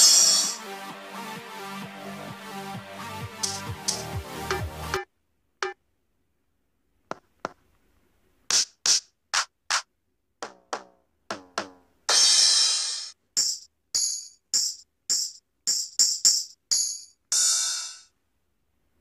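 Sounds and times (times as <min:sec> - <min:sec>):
backing track music: 0:00.0 - 0:05.0
electronic drum hits: 0:03.4 - 0:05.0.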